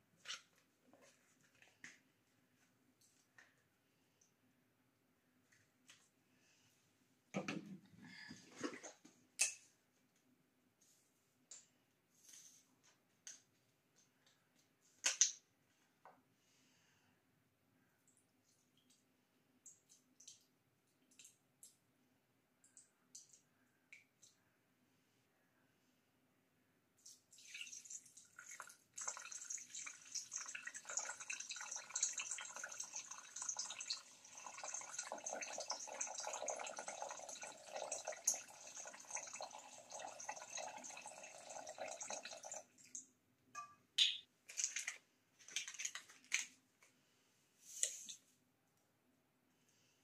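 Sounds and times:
liquid pouring: 27.4s - 42.9s.

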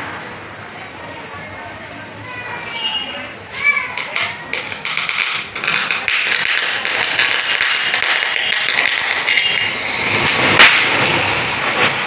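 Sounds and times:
firework hissing and crackling: 4.6s - 12.0s
sharp firework crack: 4.6s - 12.0s.

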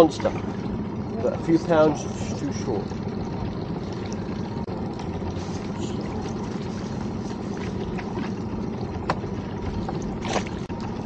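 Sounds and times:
wind and sea rumble: 0.0s - 11.0s.

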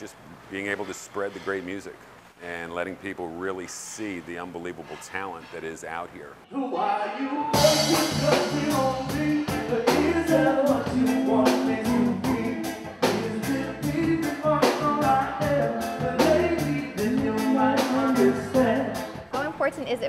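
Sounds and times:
male singer: 6.5s - 19.2s
drum kit: 7.5s - 19.7s
electric bass: 7.6s - 19.5s.

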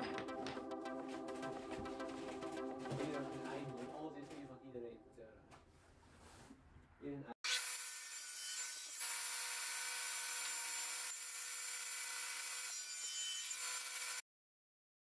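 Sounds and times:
table saw cutting wood: 7.4s - 14.2s.

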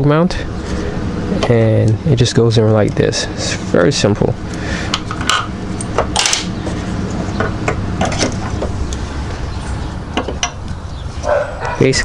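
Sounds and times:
low hum: 0.0s - 11.8s.

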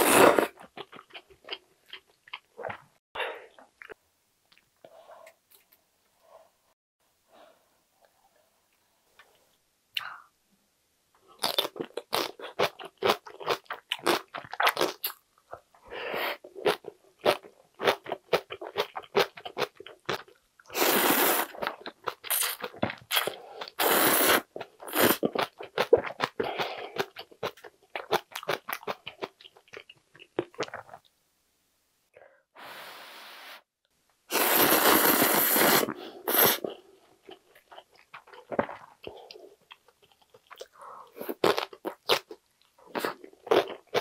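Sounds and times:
person chewing and slurping noodles: 16.6s - 31.0s, 34.3s - 44.0s.

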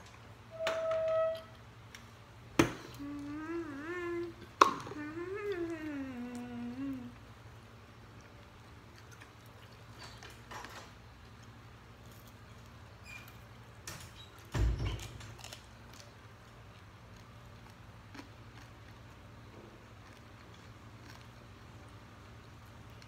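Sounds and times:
steady low hum: 1.4s - 13.9s.

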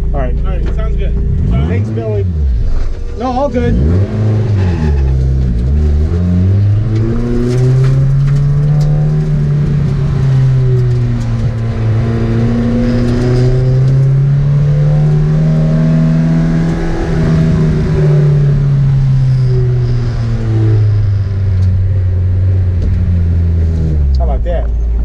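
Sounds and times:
race car engine running hard: 0.0s - 25.0s.

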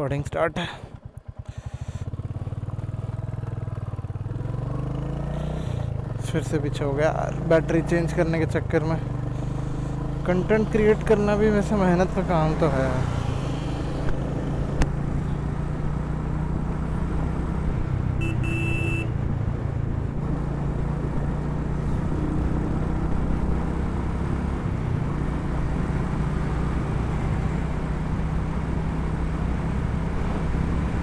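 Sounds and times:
wind and road noise: 0.0s - 31.0s
motorcycle engine cruising: 0.1s - 31.0s
vehicle horn tooting: 18.2s - 19.1s.

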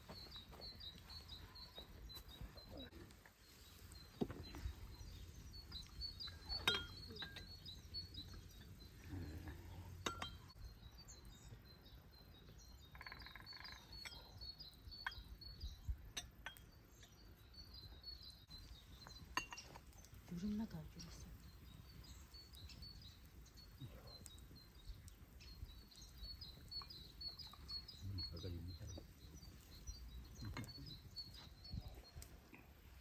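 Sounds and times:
small birds chirping: 0.0s - 33.0s
sharp clinks and knocks: 10.0s - 10.6s.

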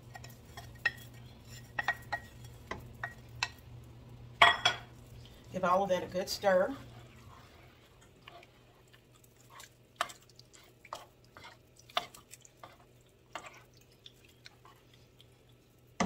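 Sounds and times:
thick sauce squelching: 6.8s - 16.0s.

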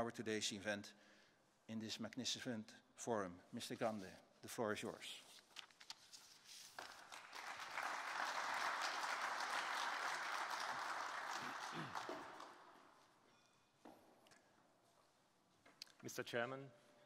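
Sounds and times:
audience applauding: 6.8s - 12.9s.

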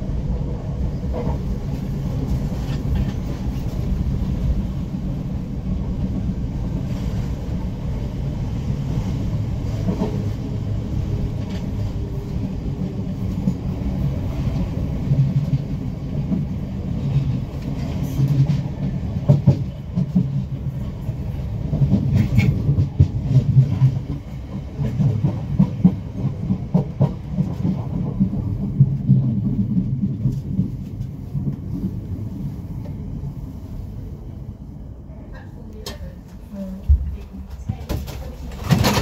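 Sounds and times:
train rumbling on rails: 0.0s - 39.0s
wheels clicking over rail joints: 36.9s - 39.0s.

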